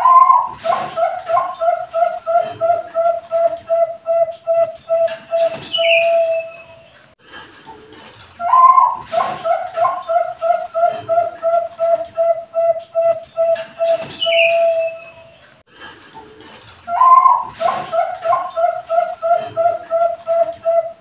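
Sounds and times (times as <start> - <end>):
dove cooing: 0.0 - 6.8, 8.4 - 15.2, 16.9 - 21.0.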